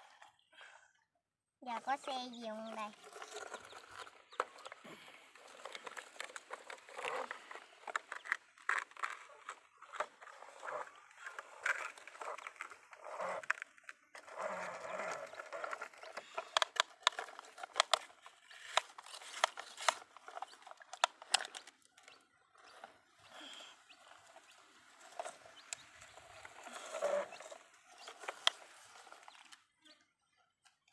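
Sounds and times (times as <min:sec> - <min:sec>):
toy vehicles scraping in mud: 0:00.0 - 0:00.7, 0:01.6 - 0:30.9
sharp plastic clicks and knocks: 0:15.6 - 0:22.1.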